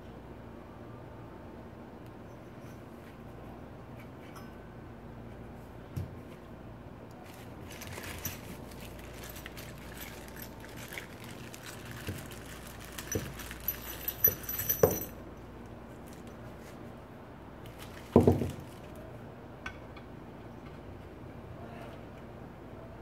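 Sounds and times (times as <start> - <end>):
plastic bags crinkling: 7.2 - 15.1, 17.7 - 19.0
small metal parts clicking: 7.3 - 15.2.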